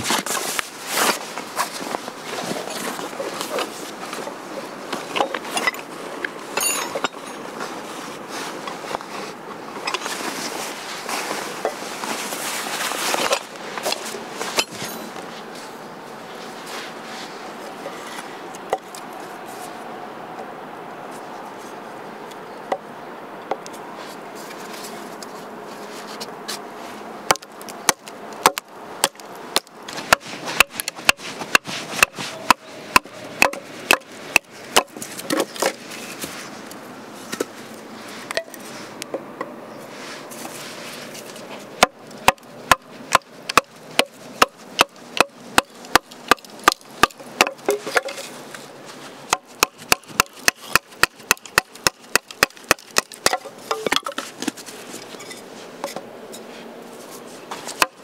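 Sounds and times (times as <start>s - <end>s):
chopping strikes on wood: 27.3s - 35.8s, 41.8s - 48.2s, 49.3s - 54.6s, 57.8s - 58.0s.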